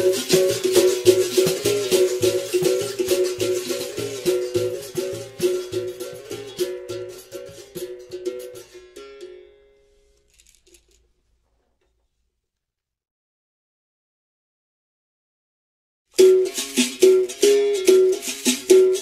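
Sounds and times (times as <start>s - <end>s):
berimbau playing: 0.0s - 10.1s, 16.2s - 19.0s
caxixi rattle: 10.2s - 11.6s.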